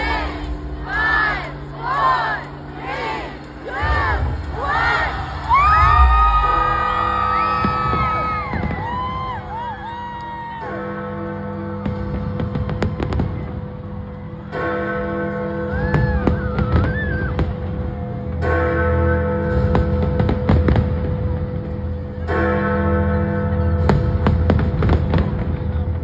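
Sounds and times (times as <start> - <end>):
large bell striking: 0.0 - 26.0
fireworks bursting: 3.8 - 10.0.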